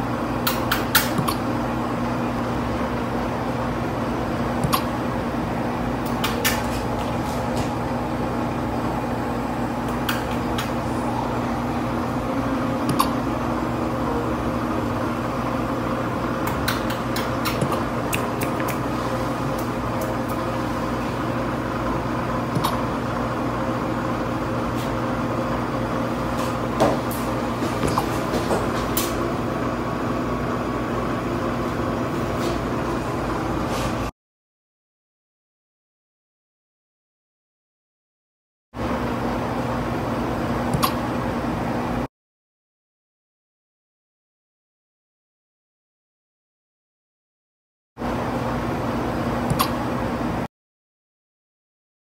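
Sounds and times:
mechanical equipment hum: 0.0s - 34.1s, 38.8s - 42.1s, 48.0s - 50.5s.

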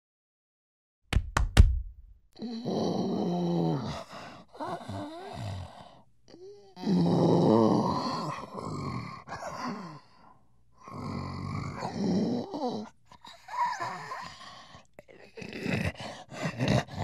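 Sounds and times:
gorilla breathing and grunting: 10.9s - 17.0s.

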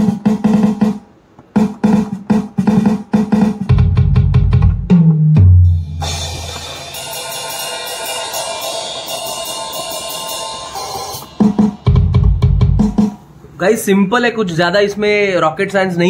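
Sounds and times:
fast drum hits with heavy bass: 1.6s - 7.5s, 11.2s - 13.2s
cymbal ringing: 6.0s - 12.1s.

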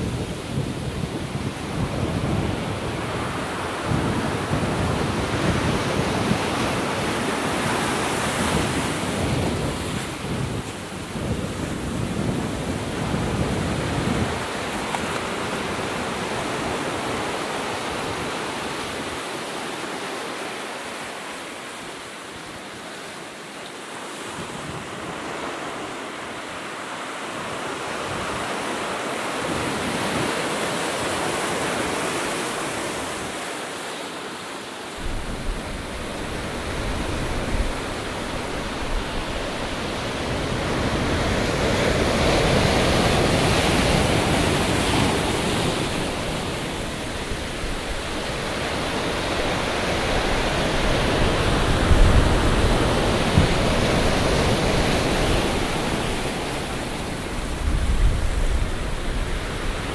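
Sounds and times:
wind rumbling on microphone: 0.0s - 19.3s, 35.0s - 59.9s
waves breaking: 0.0s - 59.9s.

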